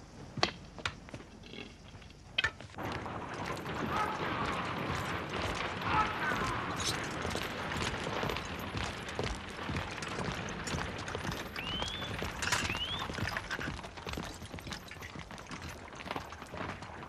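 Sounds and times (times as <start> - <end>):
hooves on cobblestones: 0.0 - 17.0
carriage rattling: 1.4 - 16.3
short rising whistles: 11.5 - 13.2.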